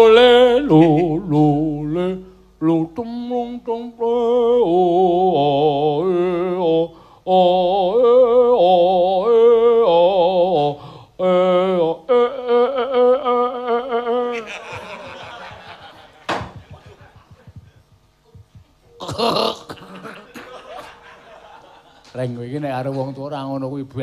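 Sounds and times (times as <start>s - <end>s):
person singing with vibrato: 0.0s - 16.0s.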